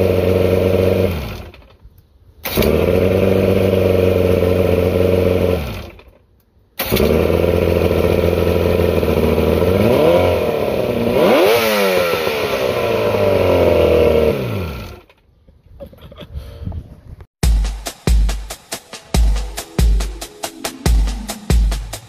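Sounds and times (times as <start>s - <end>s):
outboard motor running and revving: 0.0s - 1.6s, 2.5s - 6.0s, 6.8s - 15.1s.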